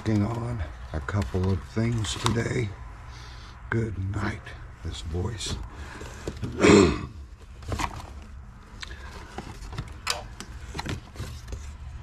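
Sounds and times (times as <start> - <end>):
paper packages rustling: 0.0 - 3.0, 7.3 - 12.0.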